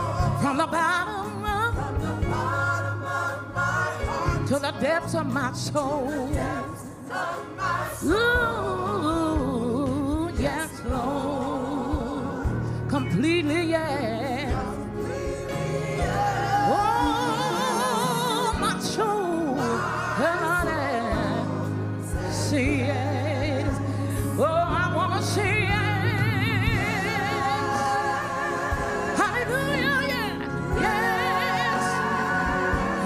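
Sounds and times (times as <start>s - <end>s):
person singing with wide vibrato: 0.0s - 33.0s.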